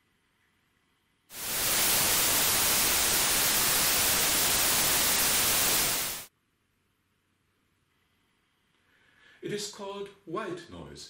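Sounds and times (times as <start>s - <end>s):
white noise hiss: 0.1s - 6.3s.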